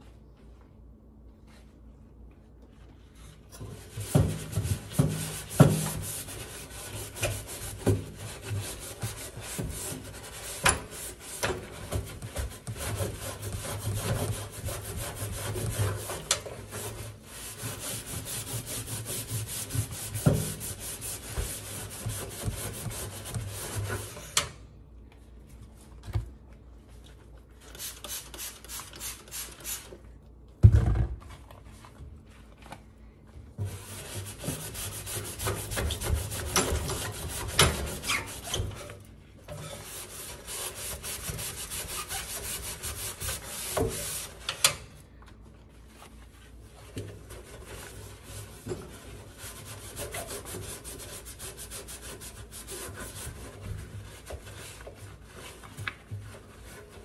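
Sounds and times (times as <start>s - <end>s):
gloved hand scrubbing metal: 39.7s - 44.3s.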